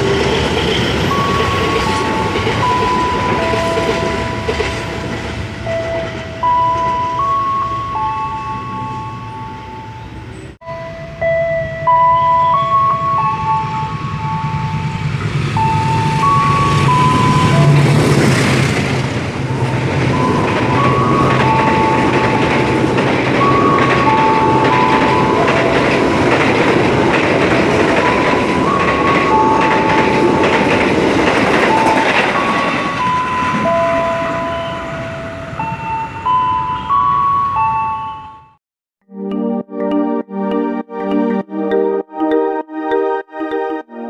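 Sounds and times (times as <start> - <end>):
train wheels rushing past: 0.0 - 10.5, 12.8 - 36.0
locomotive engine drone: 0.0 - 34.8
simple tune of single notes: 10.6 - 15.0, 39.0 - 44.0.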